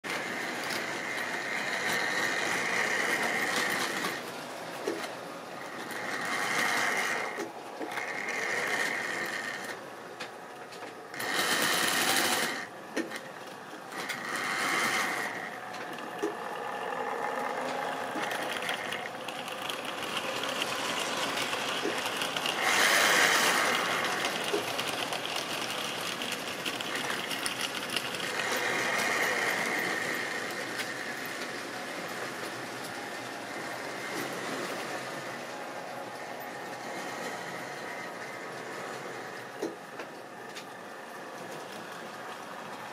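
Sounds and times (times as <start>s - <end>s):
small clicks from wheels: 0.0s - 42.9s
small electric motors whirring: 0.1s - 9.8s, 10.8s - 13.3s, 13.9s - 35.5s.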